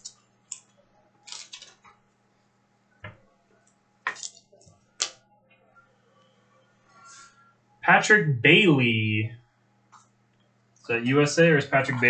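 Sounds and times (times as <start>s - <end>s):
cards clicking and scraping: 1.3s - 2.0s, 4.1s - 5.2s.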